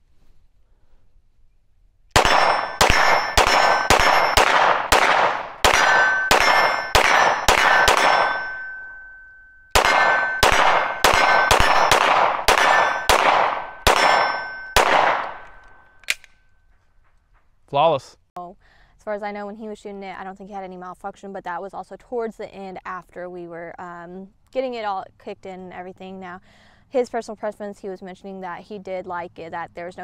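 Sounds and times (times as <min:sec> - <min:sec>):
pistol shots: 0:02.1 - 0:08.8, 0:09.7 - 0:15.7
bullet ringing steel target: 0:02.2 - 0:16.3.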